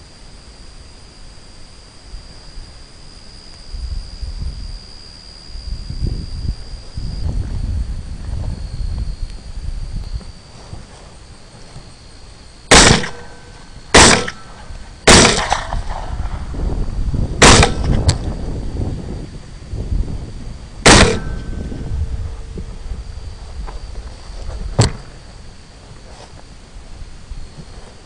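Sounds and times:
rifle shots with echo: 0:12.7 - 0:16.4, 0:17.4 - 0:17.9, 0:20.8 - 0:21.5.

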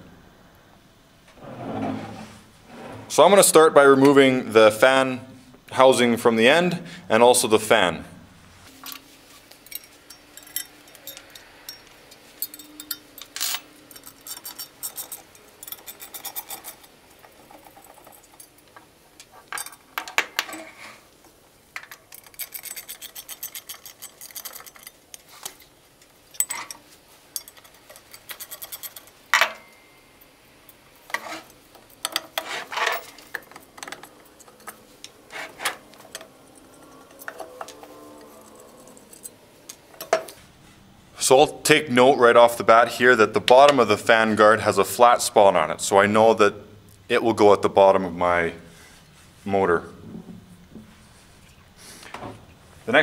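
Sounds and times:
metal clinks and scrapes: 0:08.7 - 0:21.0, 0:21.8 - 0:40.5.

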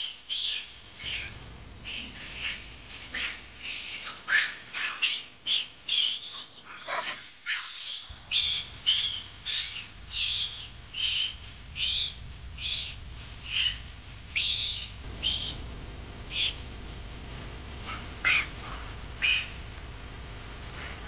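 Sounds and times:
baby monkey squealing cries: 0:19.2 - 0:19.5.

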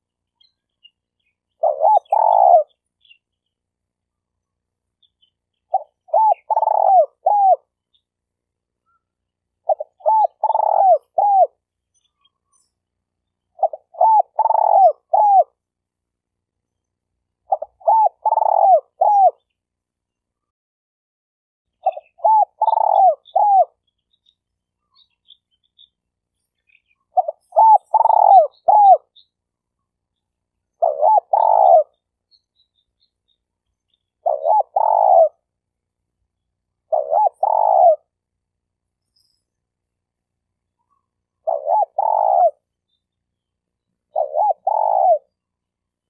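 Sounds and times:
dove cooing: 0:01.6 - 0:02.8, 0:05.7 - 0:07.7, 0:09.6 - 0:11.6, 0:13.5 - 0:15.6, 0:17.5 - 0:19.4, 0:21.8 - 0:23.8, 0:27.1 - 0:29.2, 0:30.7 - 0:32.0, 0:34.2 - 0:35.5, 0:36.9 - 0:38.2, 0:40.9 - 0:42.6, 0:44.1 - 0:45.4.

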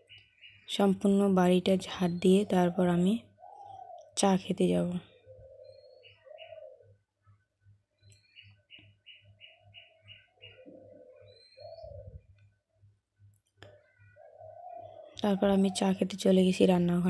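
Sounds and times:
bird cooing: 0:03.2 - 0:04.1, 0:05.1 - 0:07.0, 0:09.1 - 0:12.4, 0:13.7 - 0:16.0
small bird chirping: 0:08.0 - 0:12.5.

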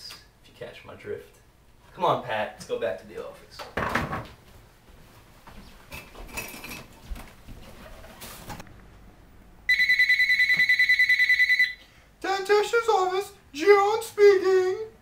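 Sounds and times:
electronic telephone ring: 0:09.7 - 0:11.8.

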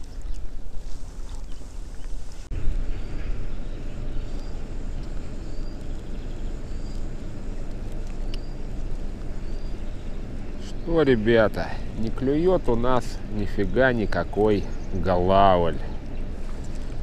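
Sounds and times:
wind and water rumble: 0:00.0 - 0:17.0
faint high chirp: 0:08.2 - 0:08.7.

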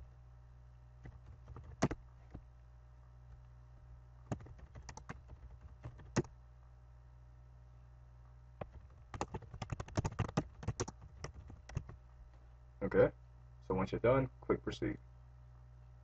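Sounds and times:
computer keyboard typing: 0:01.0 - 0:02.0, 0:04.3 - 0:06.3, 0:08.6 - 0:12.0.

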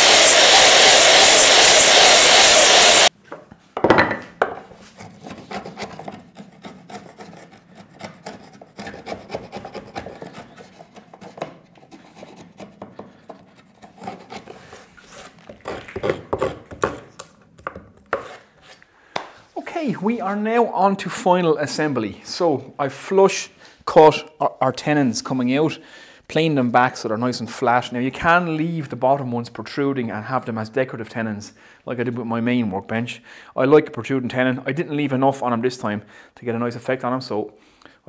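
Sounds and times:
mitre saw cutting: 0:00.0 - 0:03.1, 0:05.0 - 0:17.1
chisel scraping cuts in wood: 0:04.9 - 0:18.8
chisel knock on wood: 0:16.0 - 0:17.0.

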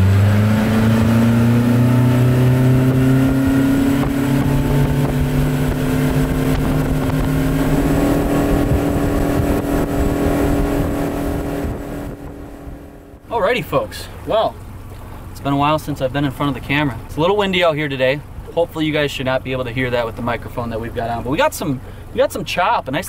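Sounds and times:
wind and water rushing: 0:00.0 - 0:15.4
outboard motor accelerating: 0:00.0 - 0:23.0.

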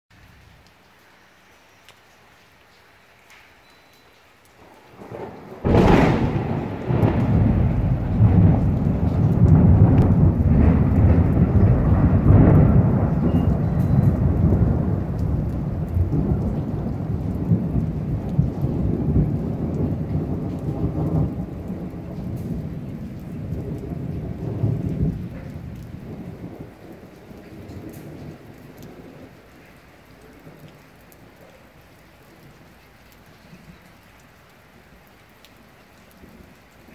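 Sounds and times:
rain falling: 0:00.1 - 0:36.9
thunder crack and rumble: 0:04.7 - 0:31.5.

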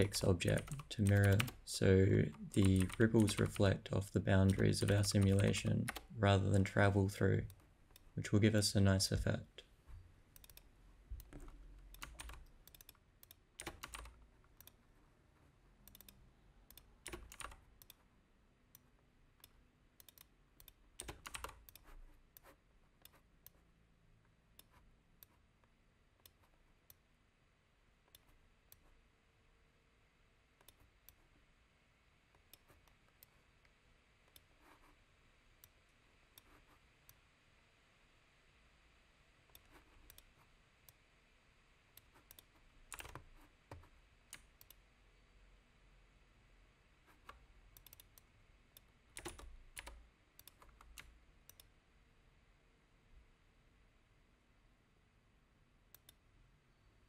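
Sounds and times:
key or mouse clicks: 0:00.0 - 0:01.6, 0:02.2 - 0:03.7, 0:04.3 - 0:08.1, 0:10.4 - 0:14.8, 0:15.8 - 0:18.0, 0:18.8 - 0:23.6, 0:42.0 - 0:44.8, 0:47.1 - 0:48.2, 0:48.8 - 0:51.7
typing on keyboard: 0:00.0 - 0:01.6, 0:02.3 - 0:03.7, 0:04.4 - 0:06.1, 0:11.2 - 0:13.0, 0:13.6 - 0:14.8, 0:17.1 - 0:18.0, 0:20.0 - 0:22.5, 0:42.3 - 0:44.4, 0:49.2 - 0:51.1.

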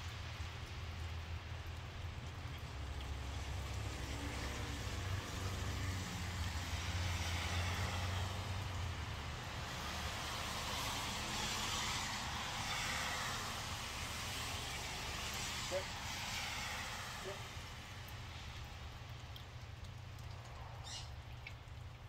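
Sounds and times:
engine rumble: 0:00.0 - 0:10.4, 0:16.7 - 0:22.0
tyre hiss on wet road: 0:00.0 - 0:19.2.

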